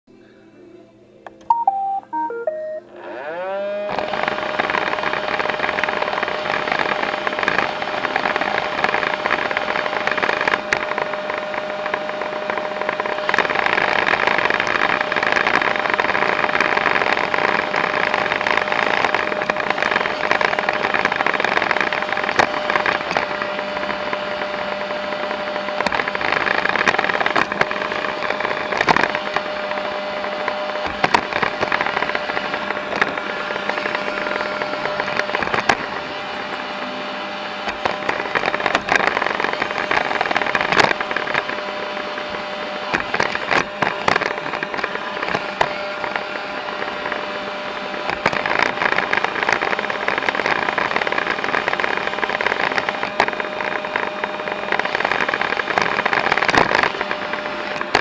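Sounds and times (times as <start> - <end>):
robot vacuum start-up beeps: 1.4 - 3.9
robot vacuum motor whirring: 2.9 - 58.0.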